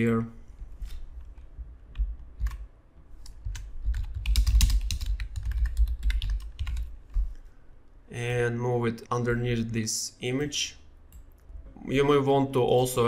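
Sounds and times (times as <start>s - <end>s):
computer keyboard typing: 1.9s - 7.3s.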